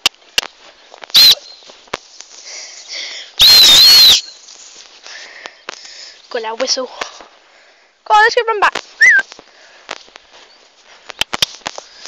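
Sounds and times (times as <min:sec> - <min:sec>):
hand whistle blasts: 0:01.1 - 0:01.6, 0:03.4 - 0:04.3.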